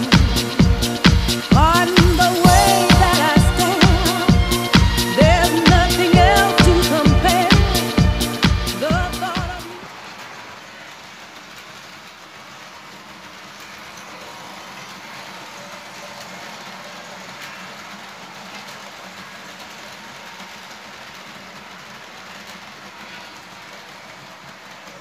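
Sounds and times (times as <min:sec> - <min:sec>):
model trains rolling whir: 0:09.8 - 0:25.0.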